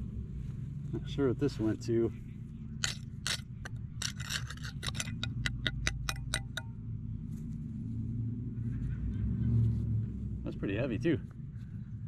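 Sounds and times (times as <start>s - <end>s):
metal blade scraping dirt off steel: 2.8s - 6.6s.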